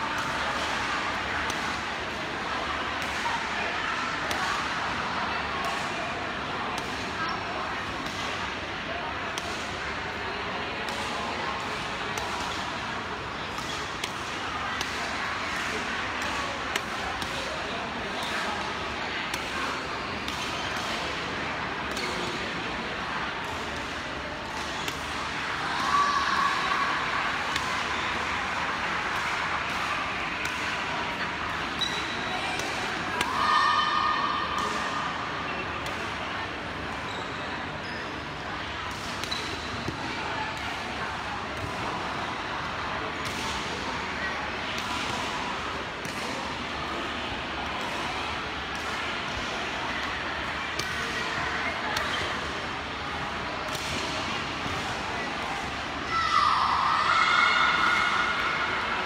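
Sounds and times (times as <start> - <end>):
sports hall din with voices: 0.0 - 59.0
rackets hitting shuttlecock: 19.3 - 22.6, 29.1 - 33.4.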